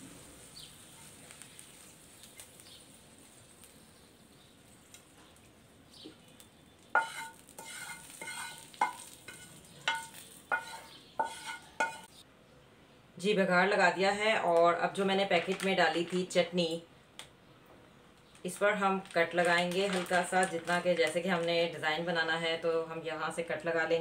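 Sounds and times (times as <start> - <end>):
hot oil sizzling in a pan: 0.0 - 5.1, 6.8 - 12.2
spatula knocking and scraping a pan: 6.9 - 12.2.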